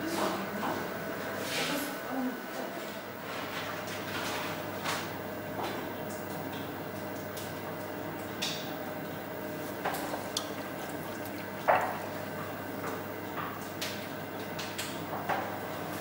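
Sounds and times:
potter's wheel humming: 5.1s - 16.0s.

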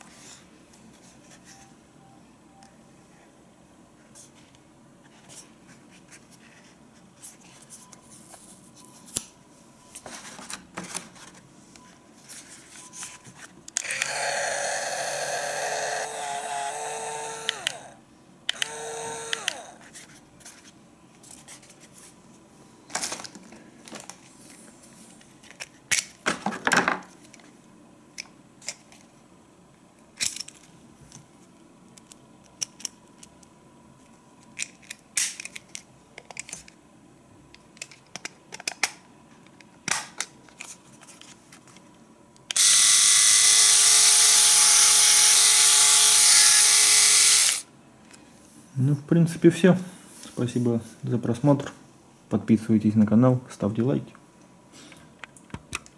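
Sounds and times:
electric shaver motor buzzing: 13.8s - 19.8s, 42.6s - 47.7s
plastic packaging rustling: 22.9s - 25.8s.

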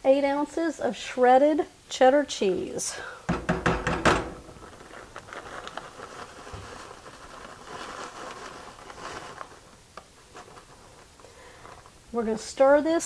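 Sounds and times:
plastic bag rustling: 4.2s - 12.7s
shredded cheese pattering into pan: 4.4s - 11.2s.

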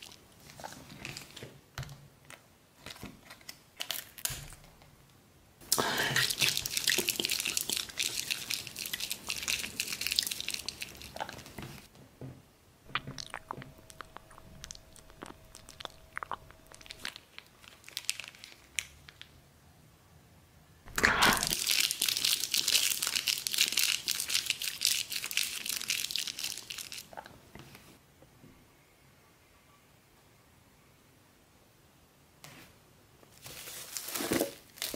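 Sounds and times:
plastic sachets crinkling: 5.7s - 11.9s, 13.0s - 19.4s, 20.9s - 27.2s, 33.4s - 34.9s.

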